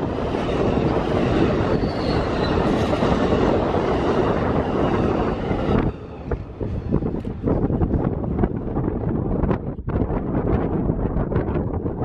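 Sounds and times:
train wheels clattering on rail: 0.0s - 9.1s
wind buffeting microphone: 0.0s - 12.0s.

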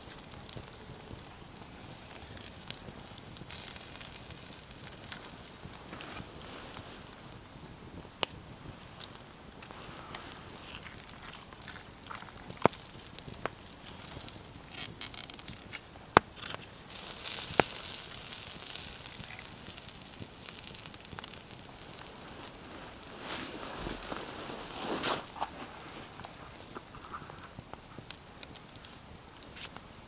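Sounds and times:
campfire crackling and popping: 0.0s - 30.0s.

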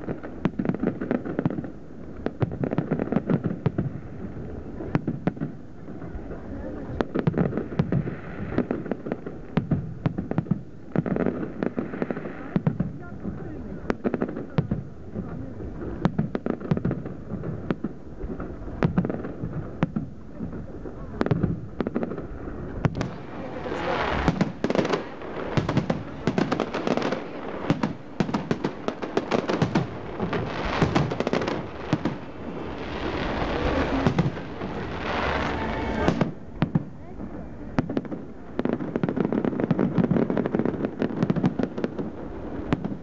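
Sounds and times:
fireworks crackling: 0.0s - 43.0s.

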